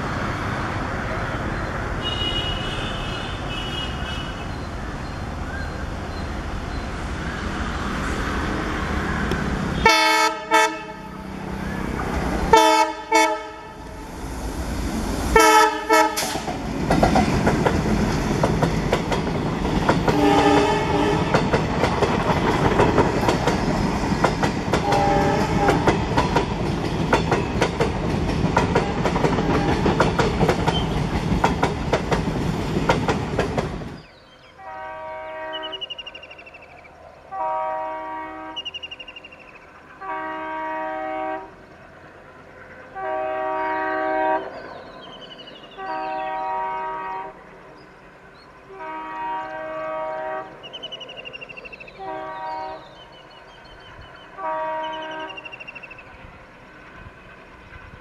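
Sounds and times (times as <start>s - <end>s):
diesel locomotive horn: 1.9s - 4.5s, 9.6s - 14.1s, 15.3s - 16.4s, 20.0s - 21.6s, 24.7s - 26.1s, 28.7s - 30.0s, 34.5s - 36.3s, 37.3s - 39.2s, 40.0s - 41.7s, 42.9s - 44.7s, 45.7s - 47.6s, 48.6s - 53.4s, 54.3s - 56.0s
distant train horn: 1.9s - 4.6s, 9.6s - 14.2s, 15.3s - 16.5s, 19.8s - 21.6s, 24.7s - 26.5s, 28.7s - 30.1s, 34.5s - 36.7s, 37.3s - 41.8s, 42.9s - 47.6s, 48.6s - 56.2s
train wheels clickety-clack: 14.8s - 34.1s.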